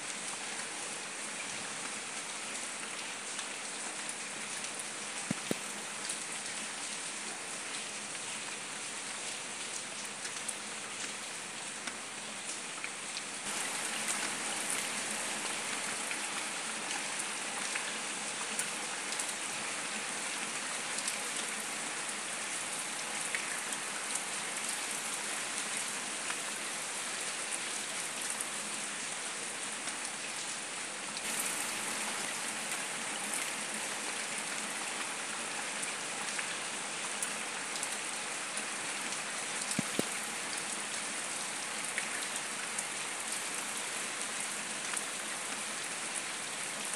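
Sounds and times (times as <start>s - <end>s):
rain on concrete: 0.0s - 46.9s
raindrops ticking: 4.6s - 6.3s, 39.6s - 40.7s.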